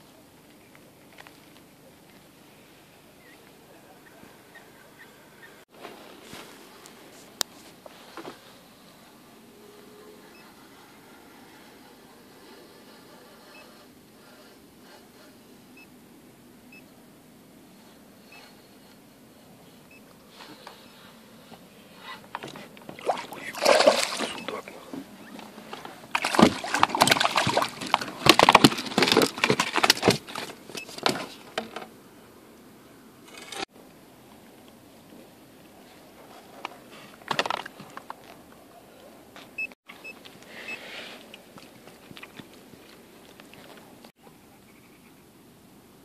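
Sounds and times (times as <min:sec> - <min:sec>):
fish splashing in water: 0:22.9 - 0:24.7, 0:26.1 - 0:30.5
fish knocking in inflatable boat: 0:26.1 - 0:30.4.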